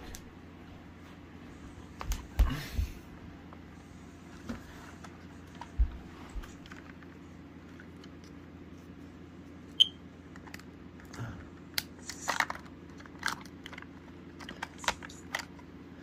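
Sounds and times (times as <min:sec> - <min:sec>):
small handling clicks and rustles: 0:05.0 - 0:08.9, 0:10.3 - 0:15.7.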